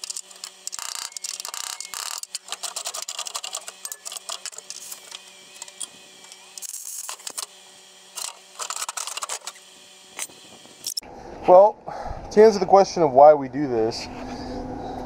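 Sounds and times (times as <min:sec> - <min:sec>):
scattered clicks: 0:00.0 - 0:07.5
steady low hum: 0:00.0 - 0:15.0.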